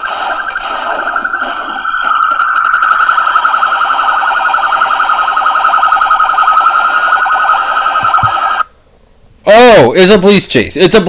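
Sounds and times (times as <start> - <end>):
electronic siren warbling: 0.0 - 8.7.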